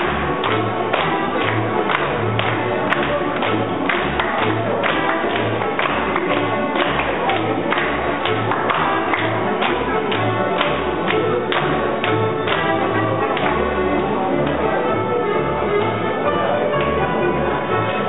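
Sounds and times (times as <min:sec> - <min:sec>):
folk dance music: 0:00.0 - 0:18.0
people clapping in time: 0:00.0 - 0:18.0.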